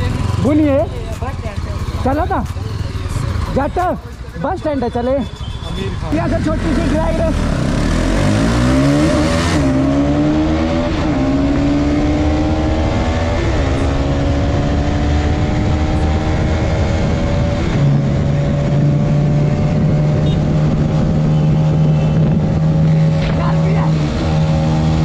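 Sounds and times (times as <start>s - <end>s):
motorcycle engine accelerating: 0.0s - 4.4s, 6.1s - 25.0s
wind on microphone: 14.6s - 25.0s.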